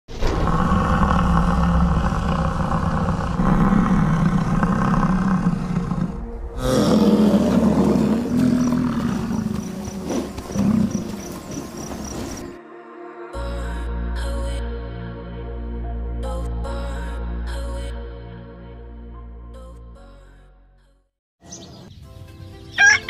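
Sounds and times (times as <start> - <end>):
bison bellowing: 0.4 - 12.5.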